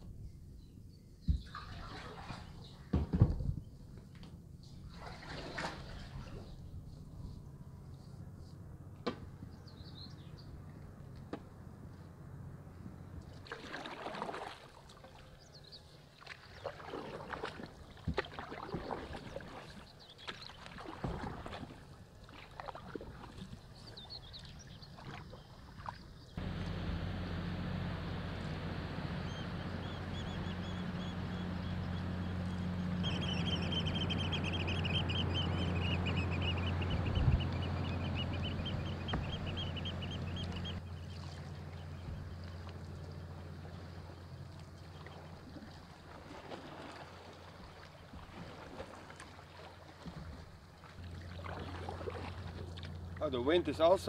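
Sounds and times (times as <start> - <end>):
paddle strokes splashing: 1.4 - 2.9, 4.8 - 6.6, 13.2 - 54.0
water noise: 1.4 - 3.2, 4.7 - 7.0, 10.5 - 54.0
bird calling: 23.8 - 42.7
steady low rumble: 26.4 - 45.4
paddle knocking on hull: 38.6 - 40.6.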